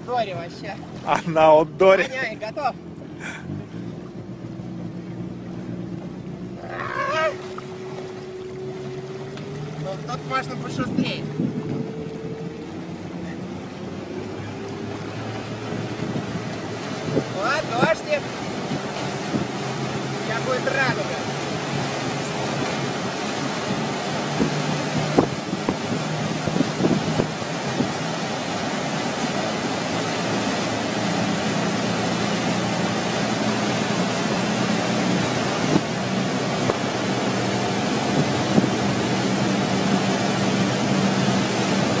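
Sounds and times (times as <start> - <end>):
motorboat engine running: 0.0 - 42.0
rushing boat wake: 0.0 - 42.0
wind buffeting microphone: 7.6 - 20.2, 21.3 - 29.4, 33.4 - 42.0.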